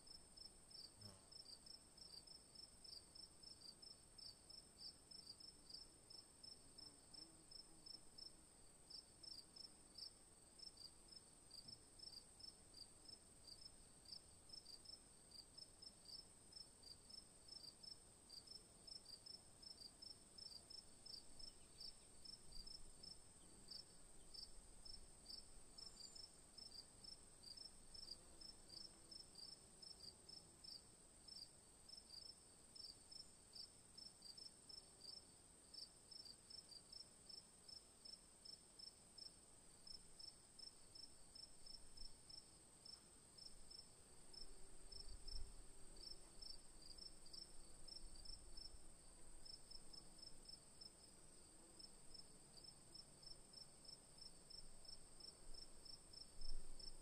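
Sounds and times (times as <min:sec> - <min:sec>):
crickets chirping: 0:00.1 - 0:57.0.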